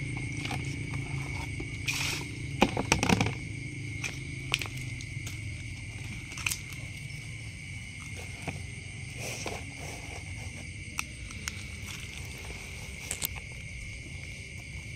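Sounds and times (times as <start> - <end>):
plastic baskets knocking and rustling: 0.2 - 3.5.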